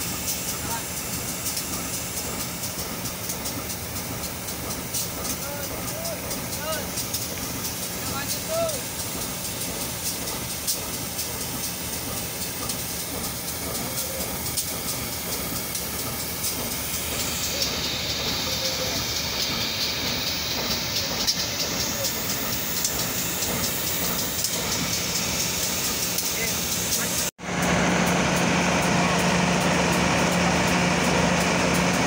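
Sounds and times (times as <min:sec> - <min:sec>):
locomotive engine humming: 0:00.0 - 0:32.0.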